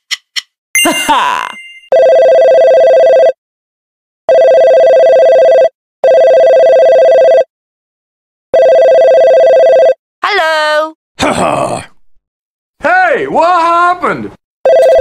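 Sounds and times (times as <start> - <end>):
two-tone phone ringtone: 0.8 - 3.4, 4.3 - 7.5, 8.6 - 10.0, 14.7 - 15.0.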